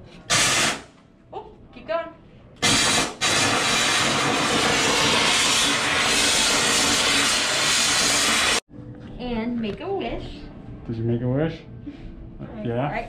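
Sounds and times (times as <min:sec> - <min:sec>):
stuffing machine blowing air: 0:00.3 - 0:00.9, 0:02.6 - 0:08.6.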